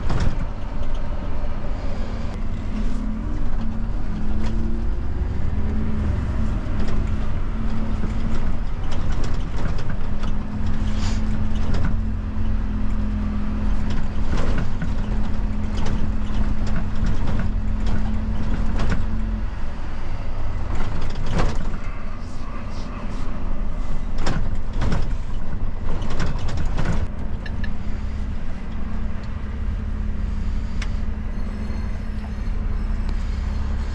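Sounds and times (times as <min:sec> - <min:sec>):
knocks and rattles: 0:00.0 - 0:01.1, 0:06.7 - 0:12.1, 0:13.7 - 0:19.3, 0:20.6 - 0:22.0, 0:24.0 - 0:27.8
truck engine and road drone: 0:00.0 - 0:33.9.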